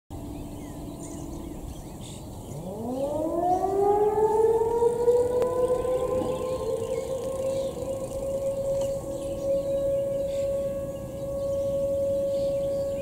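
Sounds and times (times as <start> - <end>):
birds chirping: 0.1 - 13.0
siren winding up: 2.6 - 9.8.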